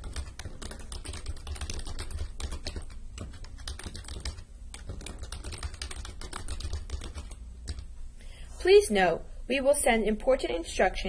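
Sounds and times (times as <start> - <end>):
typing on computer keyboard: 0.0 - 7.9
steady low hum: 0.0 - 11.0.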